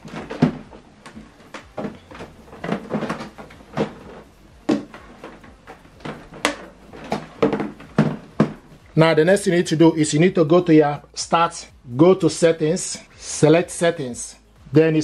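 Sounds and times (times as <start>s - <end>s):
plastic printer knocking and clattering: 0.0s - 8.6s.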